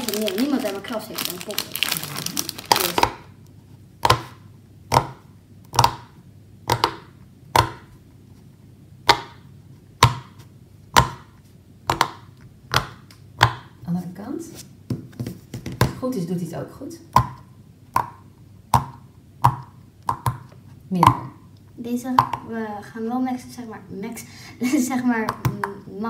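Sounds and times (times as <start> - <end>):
plastic bag crinkling: 0.0 - 3.3
silicone fidget toy popping: 4.0 - 7.9, 17.1 - 21.3, 22.1 - 22.5.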